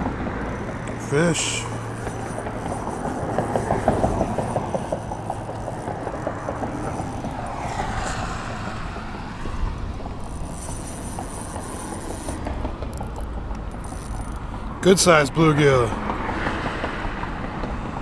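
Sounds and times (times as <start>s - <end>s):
fishing reel clicking: 0.0s - 7.6s, 9.4s - 15.2s
wind rumbling on microphone: 1.7s - 14.0s.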